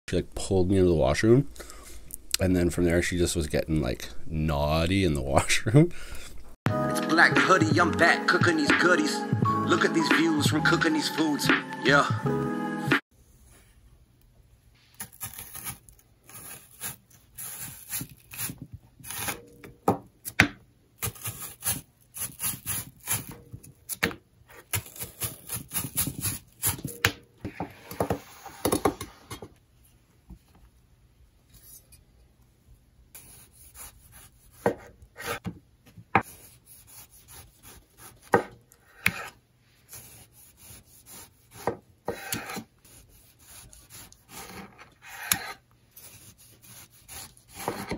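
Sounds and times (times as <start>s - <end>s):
knife scraping board: 15.0s - 19.4s, 36.2s - 47.9s.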